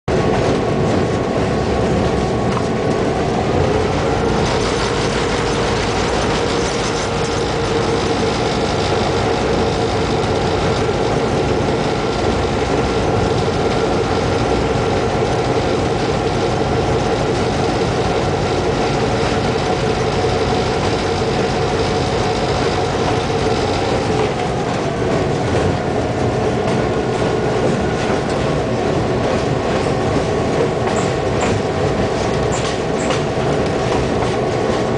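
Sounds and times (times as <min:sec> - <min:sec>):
diesel locomotive engine running: 0:00.1 - 0:34.9
wheel noise on rails: 0:00.1 - 0:34.9.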